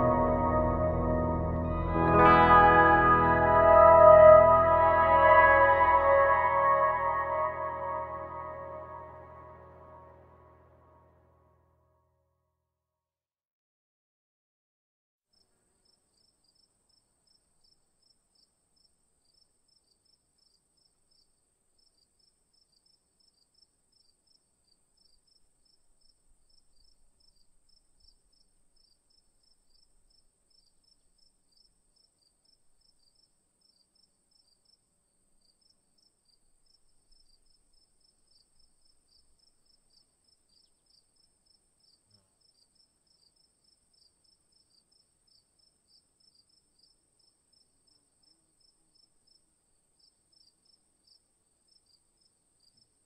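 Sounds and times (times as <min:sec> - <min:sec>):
insects chirping: 0:15.8 - 0:52.9.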